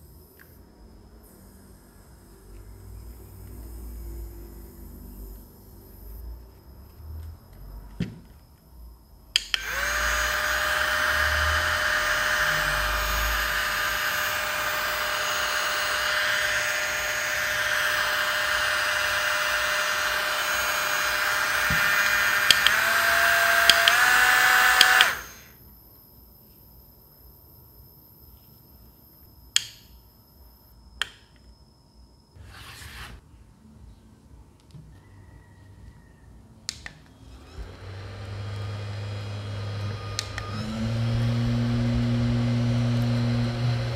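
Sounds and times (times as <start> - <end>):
fan motor whine with air hiss: 0.0 - 6.4, 9.0 - 25.6, 37.2 - 43.9.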